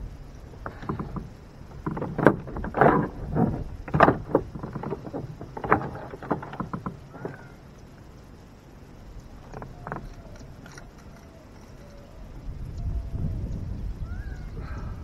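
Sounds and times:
knocks and rattles on boat: 0:00.5 - 0:07.9, 0:09.3 - 0:11.9.

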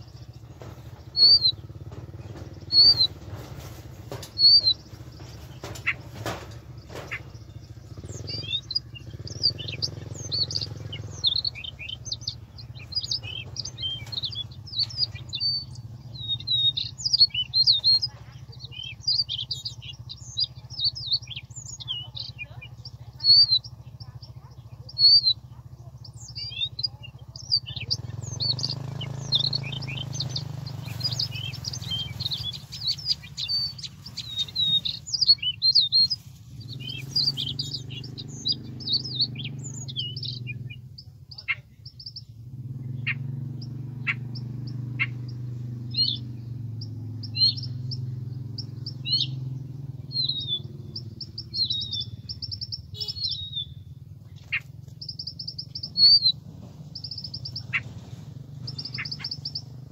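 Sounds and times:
bird song from speaker: 0:00.0 - 0:59.9.

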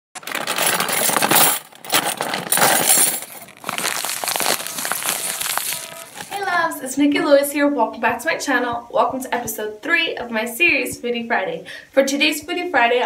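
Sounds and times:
crackling clinking clicks: 0:00.2 - 0:06.4.

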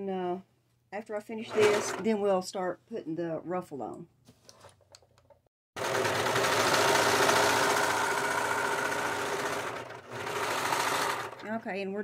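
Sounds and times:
serger sewing machine running: 0:01.5 - 0:02.0, 0:05.8 - 0:11.5.

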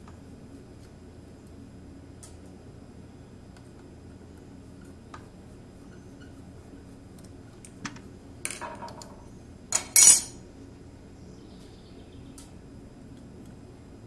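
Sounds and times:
small metal parts clinking: 0:09.7 - 0:10.4.

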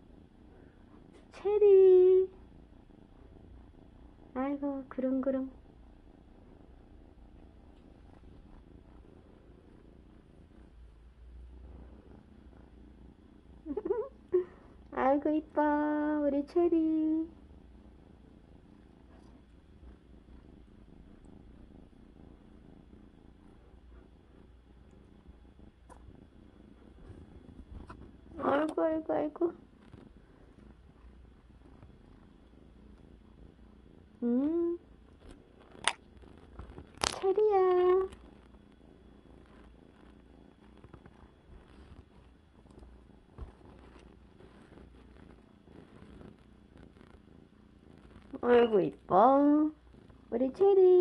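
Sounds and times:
kitten purring: 0:00.0 - 0:51.0
person humming: 0:34.2 - 0:34.8.

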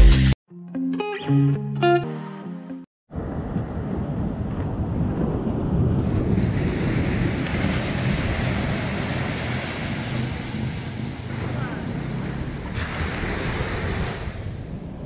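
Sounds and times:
wind buffeting microphone: 0:03.1 - 0:15.0
small waves breaking on sand: 0:06.0 - 0:14.8.

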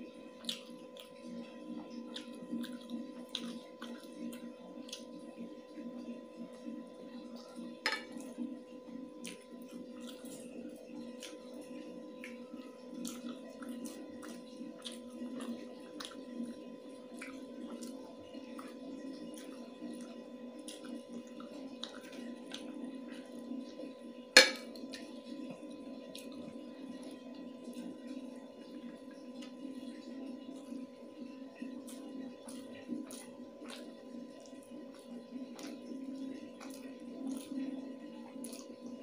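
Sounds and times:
steady hum: 0:00.0 - 0:39.0
chewing clicks: 0:00.4 - 0:01.3, 0:02.0 - 0:05.1, 0:31.8 - 0:37.7, 0:38.3 - 0:38.8.

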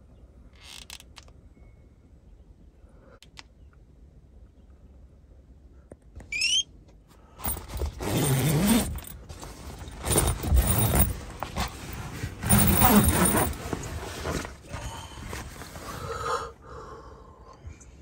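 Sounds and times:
zip being pulled open: 0:07.4 - 0:14.6
nylon fabric rustling: 0:07.4 - 0:15.9.

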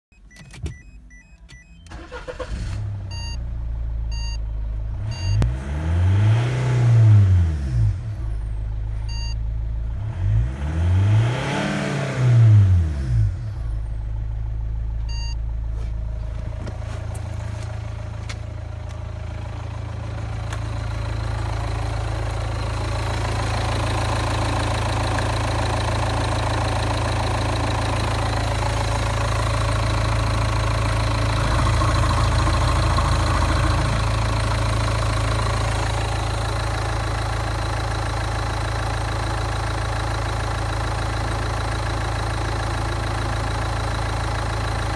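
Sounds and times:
short dashboard beeps: 0:00.1 - 0:02.5, 0:03.1 - 0:03.4, 0:04.1 - 0:04.4, 0:05.1 - 0:05.5, 0:09.1 - 0:09.4, 0:15.1 - 0:15.4
diesel car engine starting and revving: 0:01.6 - 0:44.9.

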